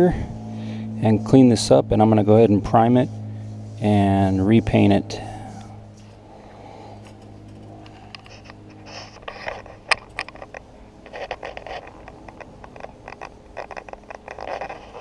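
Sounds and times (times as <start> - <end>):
steel wool scrubbing metal: 1.0 - 5.5.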